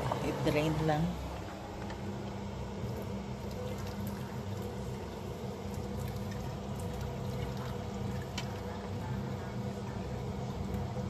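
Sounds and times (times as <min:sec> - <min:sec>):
low steady hum: 0:00.0 - 0:11.0
water pouring into steel sink: 0:02.9 - 0:08.9.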